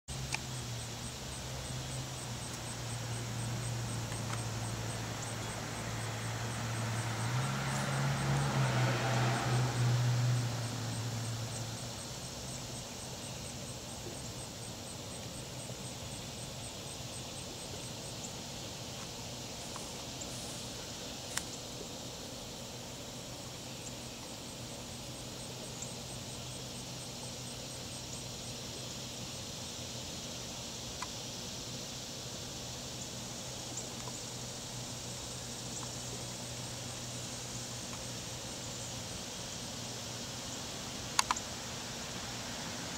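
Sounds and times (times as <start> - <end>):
insect chirping: 0.1 - 42.9
steady background hiss: 0.1 - 42.9
passing engine drone: 1.6 - 12.2
light clicks: 41.1 - 41.5.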